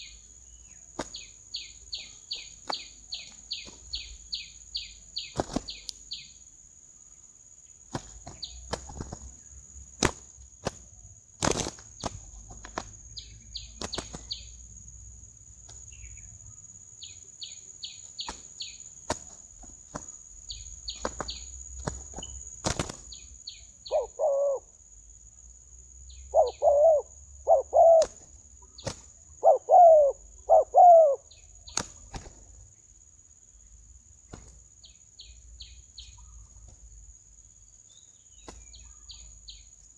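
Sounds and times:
wings beating and slapping: 0.9 - 1.4, 2.6 - 4.0, 5.3 - 6.0, 7.9 - 14.5, 18.0 - 23.3, 27.9 - 29.2, 31.7 - 32.6, 34.3 - 34.6, 38.4 - 38.7
short bird calls: 23.1 - 24.7, 26.1 - 32.3.

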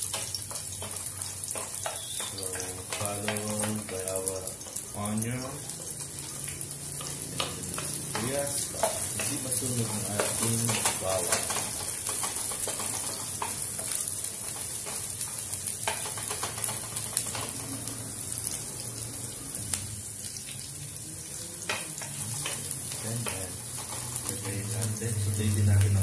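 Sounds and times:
spatula scraping pan: 0.0 - 18.0, 21.6 - 25.5
garlic and onion sizzling in oil: 0.0 - 26.0.

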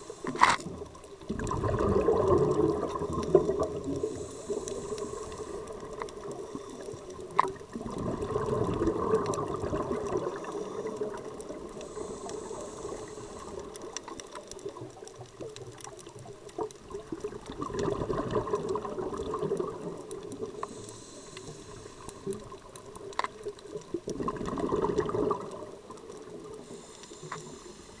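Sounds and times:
regulator inhalation hiss: 0.0 - 0.6, 4.0 - 7.0, 11.8 - 14.0, 20.6 - 22.4, 26.6 - 28.0
exhaust bubbles gurgling: 0.6 - 20.7, 22.2 - 26.8.

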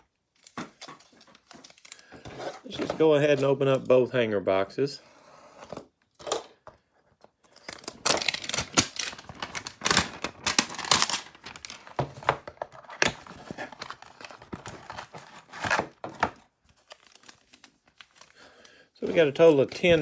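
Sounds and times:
cardboard tearing: 7.7 - 12.0, 12.8 - 18.2
foil packs rustling and crinkling: 7.7 - 20.0.

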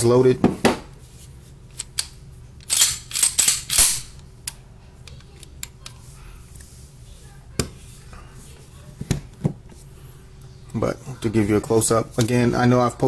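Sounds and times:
pistol slide metal clacks: 1.8 - 4.1.

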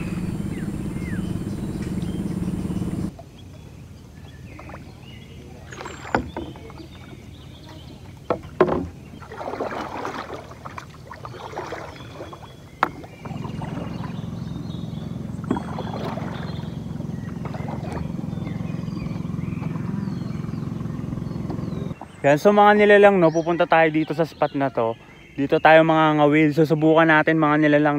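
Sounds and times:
steady low hum: 0.0 - 3.2, 8.9 - 22.1
paddle splashing in water: 4.2 - 20.6
paddle knocking against bamboo: 5.8 - 7.2, 8.2 - 13.9.

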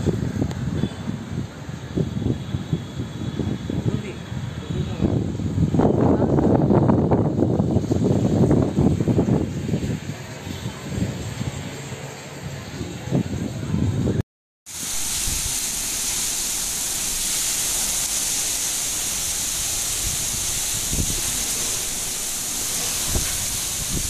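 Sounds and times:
heavy rain falling: 14.7 - 24.0.

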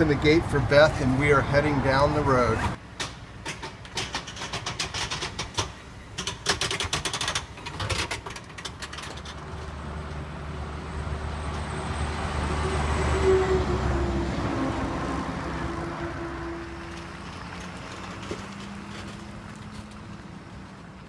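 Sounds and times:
metallic rattles and clicks: 3.0 - 10.2.

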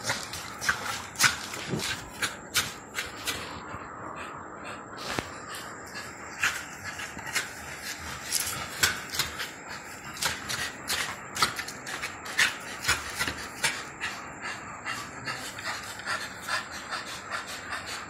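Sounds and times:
dog chewing wooden stick: 0.0 - 3.9, 5.0 - 14.0.

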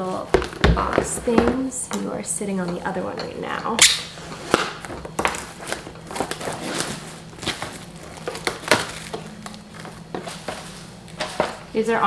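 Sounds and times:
plastic wrap crinkling: 3.8 - 11.7.

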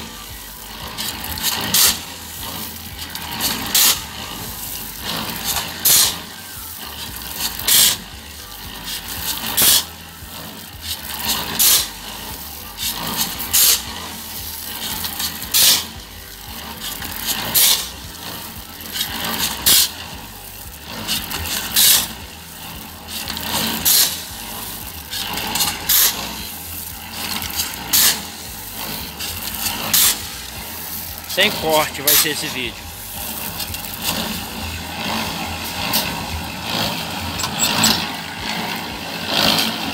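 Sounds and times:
concrete mixer humming: 0.0 - 39.9
shovel scraping gravel: 0.0 - 39.9.

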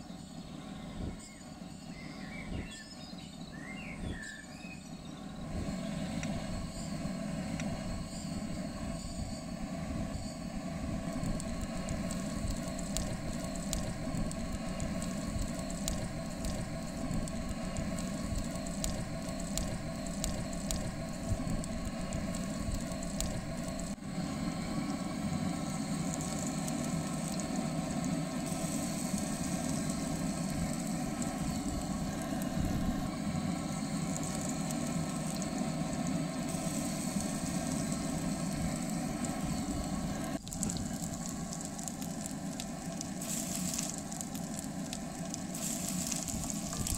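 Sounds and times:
crackling pops: 11.0 - 24.0, 25.9 - 46.9
butter sizzling in a skillet: 40.5 - 46.9.

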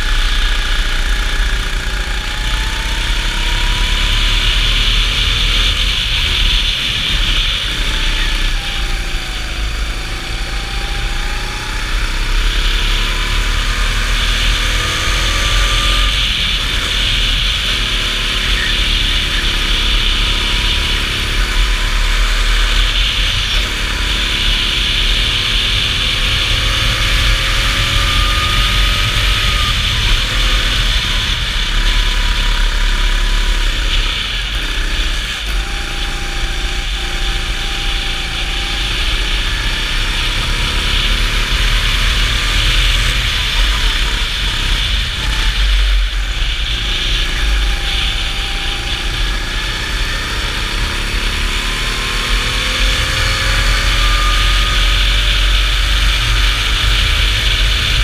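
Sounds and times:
go-kart engine racing: 0.0 - 58.0.

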